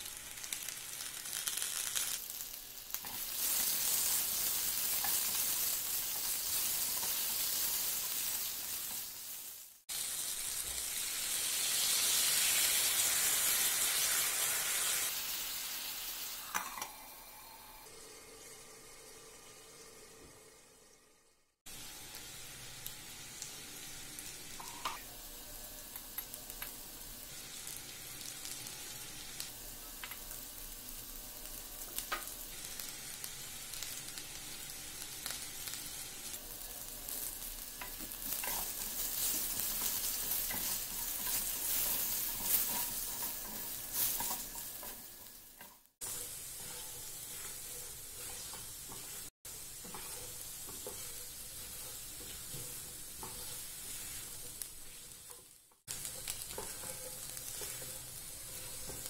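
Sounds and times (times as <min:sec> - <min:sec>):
potatoes sizzling in oil: 0:00.0 - 0:21.0, 0:21.7 - 0:59.0
spatula scraping pan: 0:37.8 - 0:59.0.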